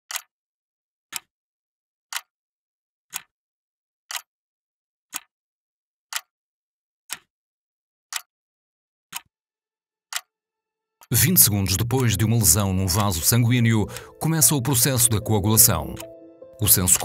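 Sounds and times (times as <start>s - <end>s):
clock ticking: 11.0s - 17.0s.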